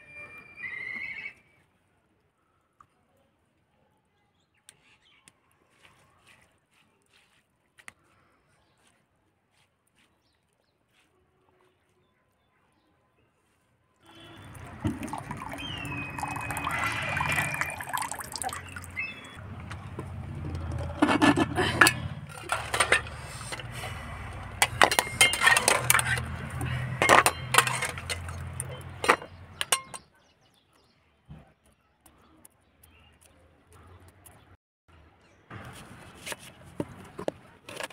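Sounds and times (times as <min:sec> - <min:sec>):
metal utensils clinking: 0:20.7 - 0:30.1.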